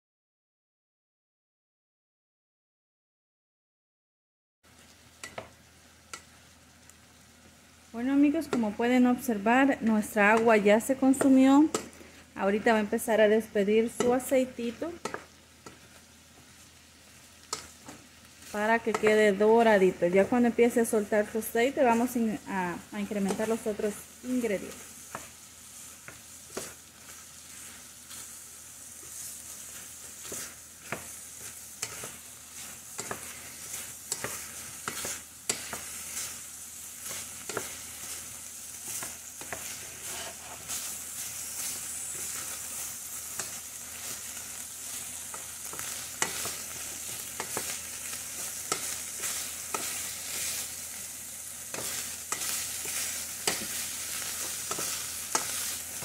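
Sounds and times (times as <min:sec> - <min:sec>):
pork sizzling in a pot: 0:04.6 - 0:56.0
wooden spoon scraping a pot: 0:29.0 - 0:36.4, 0:37.0 - 0:44.3.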